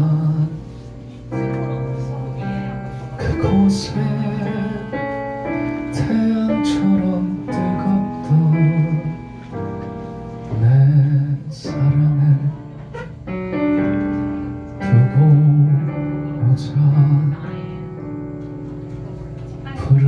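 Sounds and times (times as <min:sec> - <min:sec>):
man singing a slow ballad: 0:00.0 - 0:01.3, 0:02.7 - 0:13.0, 0:14.8 - 0:18.0, 0:19.8 - 0:20.0
stage piano chords: 0:00.0 - 0:20.0.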